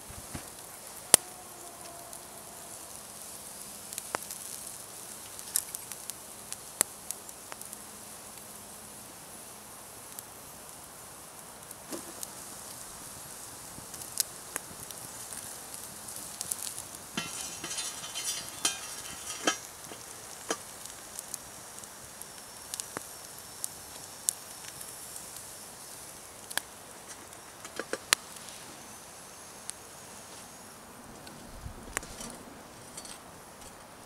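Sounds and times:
meat sizzling on a grill: 0.0s - 30.8s
embers popping and crackling: 0.0s - 34.0s
knife scraping a wire rack: 17.2s - 20.6s.

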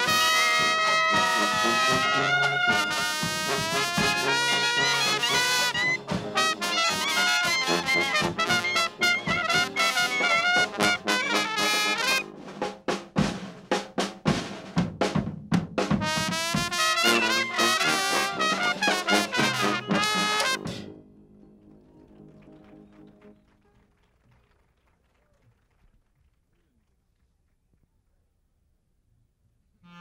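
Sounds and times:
jazz band playing: 0.0s - 14.6s, 15.8s - 21.0s
drum kit: 0.0s - 21.0s.

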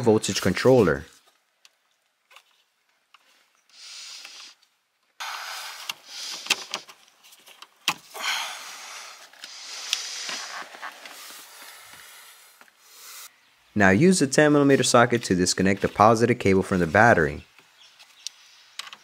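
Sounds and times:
rustling and scraping plastic trim: 1.1s - 3.6s, 5.8s - 8.1s, 9.2s - 12.0s.

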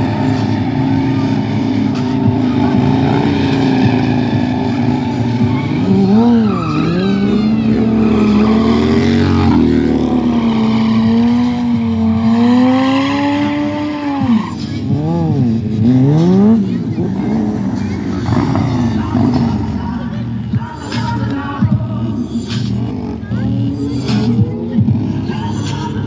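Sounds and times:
tires squealing on asphalt: 0.0s - 21.3s
motorcycle engines revving: 0.0s - 26.0s.

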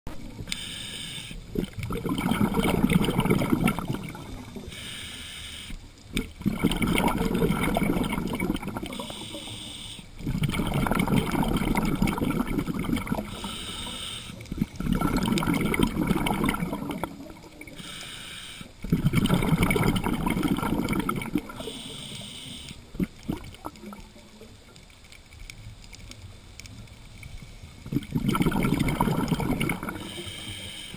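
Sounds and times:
exhaled air bubbling underwater: 0.1s - 25.6s, 26.7s - 30.9s
hissing regulator inhale: 0.5s - 1.5s, 4.4s - 5.8s, 8.9s - 10.3s, 13.2s - 14.8s, 17.7s - 18.9s, 21.5s - 22.9s, 29.8s - 30.9s.

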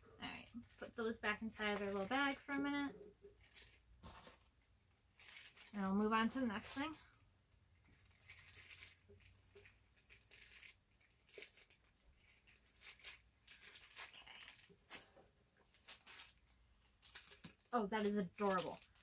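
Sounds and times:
packaging crinkling: 3.3s - 5.8s, 8.0s - 19.0s.

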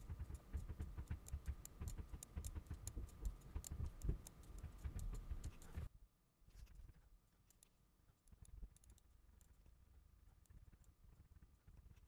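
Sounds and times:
computer mouse clicks: 0.0s - 5.9s.

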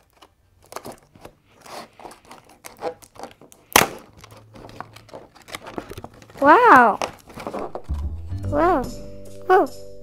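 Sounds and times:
packaging crinkling and tearing: 0.0s - 8.1s.

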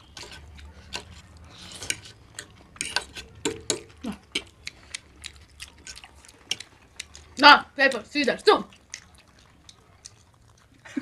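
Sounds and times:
metal utensils clinking on dishes: 0.0s - 4.6s.

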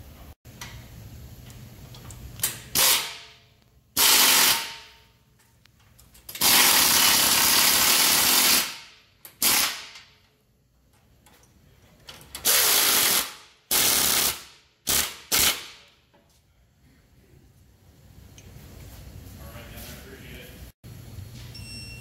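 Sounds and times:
air ratchet running: 4.0s - 5.0s, 6.3s - 10.1s, 12.4s - 15.7s.

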